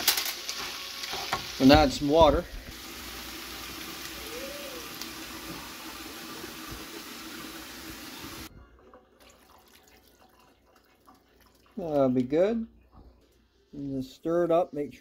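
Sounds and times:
food sizzling in a skillet: 0:00.0 - 0:08.5
water pouring into a pan: 0:00.0 - 0:12.3.

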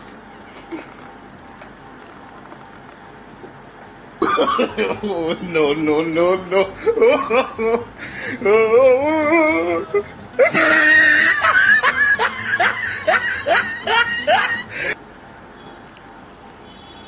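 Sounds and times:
comic whooping laughter: 0:04.2 - 0:05.5, 0:06.5 - 0:15.0
music: 0:07.8 - 0:15.0.

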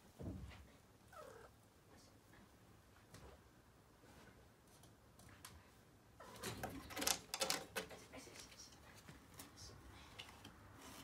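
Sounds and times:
kitten claws scrabbling on wood: 0:06.4 - 0:08.0.

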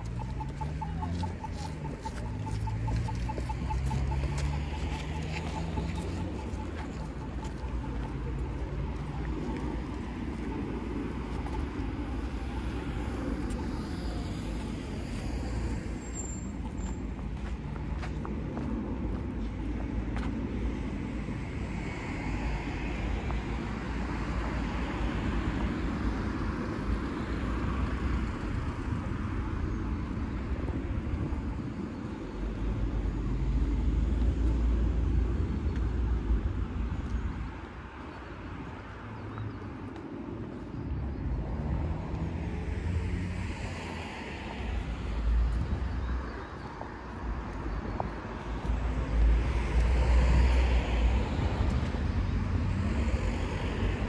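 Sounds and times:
background road traffic: 0:00.0 - 0:54.0
cars passing close: 0:00.0 - 0:54.0.

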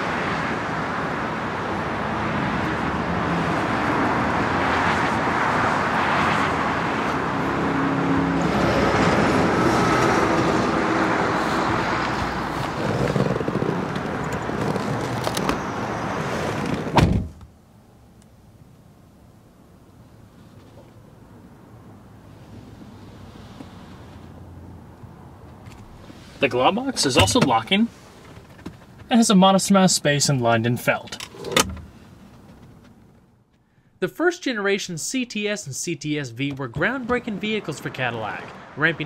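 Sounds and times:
traffic noise: 0:00.0 - 0:39.0
car door thud: 0:16.6 - 0:17.5, 0:31.4 - 0:31.9.

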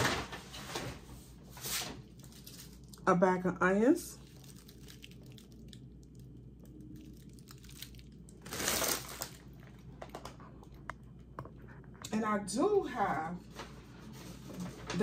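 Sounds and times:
mesh bag rustling: 0:02.1 - 0:03.0, 0:07.0 - 0:09.7.

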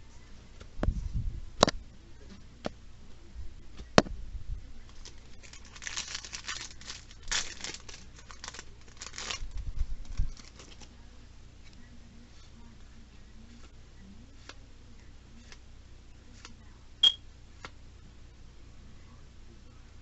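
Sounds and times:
foil wrapper crinkling: 0:04.9 - 0:10.9.

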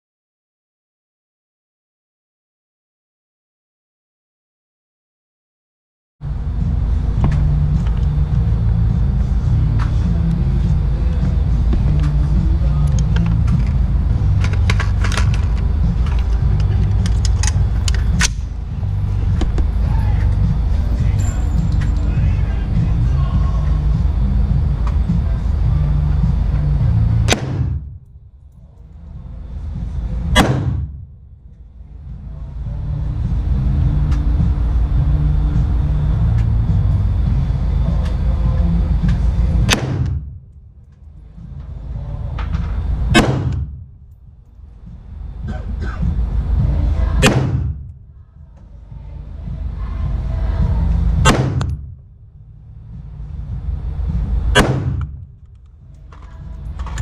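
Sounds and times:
low background rumble: 0:06.2 - 0:57.0
handgun shots: 0:27.3 - 0:27.9, 0:30.4 - 0:31.0, 0:39.7 - 0:40.2, 0:43.2 - 0:43.7, 0:47.2 - 0:47.8, 0:51.2 - 0:51.8, 0:54.6 - 0:55.2.

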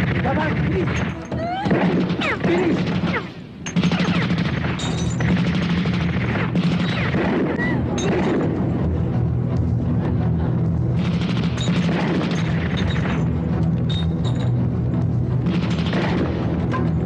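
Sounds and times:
rapid gunfire: 0:00.0 - 0:08.6, 0:11.0 - 0:13.2, 0:15.4 - 0:16.6
low background music: 0:00.0 - 0:17.0.

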